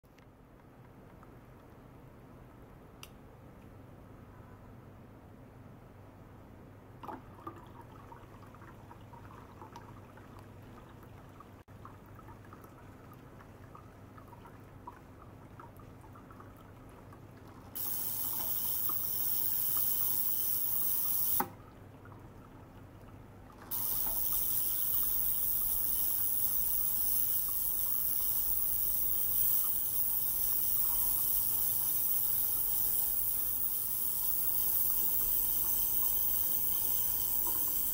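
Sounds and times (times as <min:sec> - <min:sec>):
water circulating from small pump: 0:07.0 - 0:37.9
ultrasonic cleaner hissing: 0:17.8 - 0:21.5, 0:23.7 - 0:37.9.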